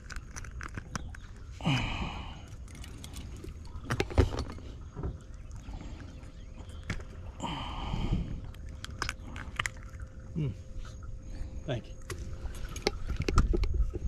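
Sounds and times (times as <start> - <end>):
wind rumbling on microphone: 0.0 - 10.5, 12.0 - 14.0
knocks and clatter on a boat: 3.1 - 5.3, 12.0 - 14.0.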